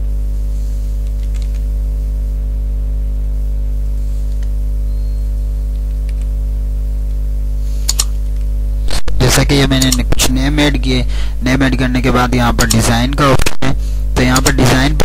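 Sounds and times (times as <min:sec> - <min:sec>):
electrical mains hum: 0:00.0 - 0:15.0
computer keyboard keystrokes: 0:01.1 - 0:01.6, 0:07.9 - 0:08.1, 0:09.8 - 0:10.0, 0:12.6 - 0:13.2.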